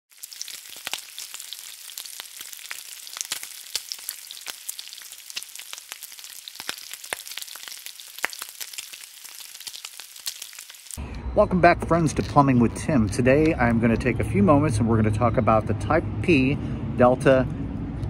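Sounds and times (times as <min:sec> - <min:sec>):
crackling hiss with pops: 0:00.2 - 0:11.0.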